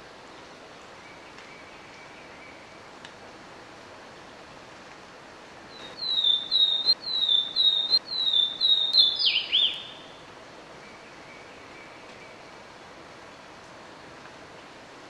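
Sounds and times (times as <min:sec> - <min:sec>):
bird singing whistles: 0:05.7 - 0:10.1.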